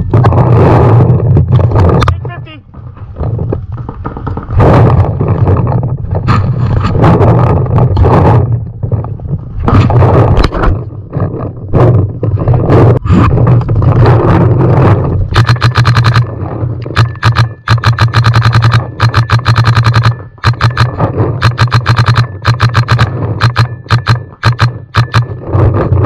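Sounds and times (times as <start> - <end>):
low rumble: 0.0 - 26.0
paintball marker firing rapid shots: 15.3 - 26.0.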